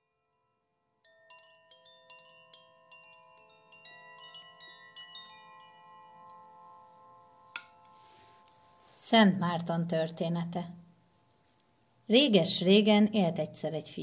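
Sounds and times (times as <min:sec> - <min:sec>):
faint tinkling chimes: 0:00.0 - 0:09.9.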